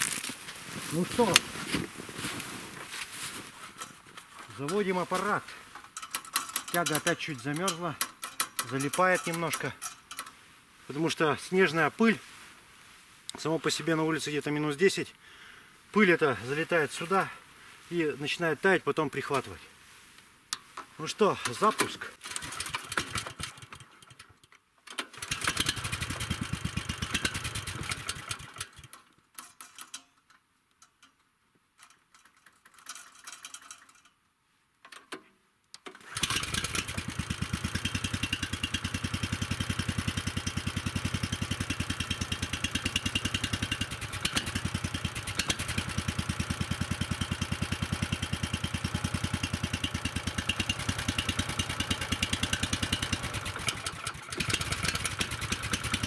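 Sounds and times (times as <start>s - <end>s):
towing sled engine running: 25.2s - 28.8s, 36.0s - 56.0s.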